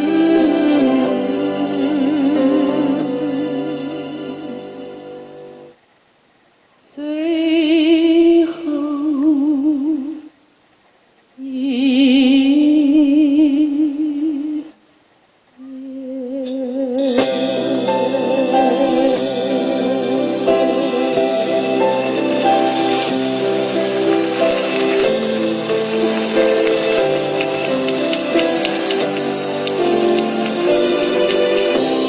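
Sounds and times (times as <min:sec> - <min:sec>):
slow melody with vibrato: 0:00.0 - 0:05.8, 0:17.0 - 0:32.0.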